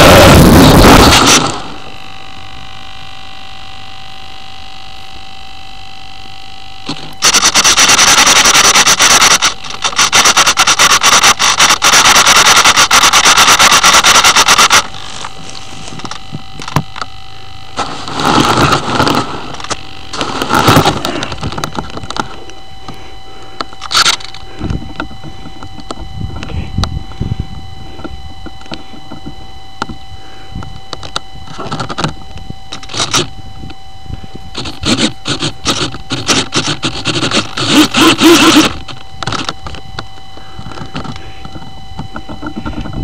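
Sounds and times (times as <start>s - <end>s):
thin electronic whine: 0.0s - 43.0s
rustling and scraping on microphone: 14.8s - 16.9s, 17.8s - 23.0s, 38.7s - 43.0s.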